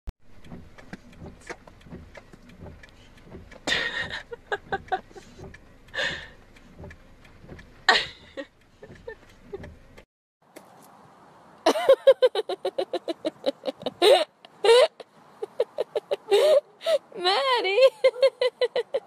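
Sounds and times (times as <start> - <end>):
small clicks and knocks: 0.3 - 10.7.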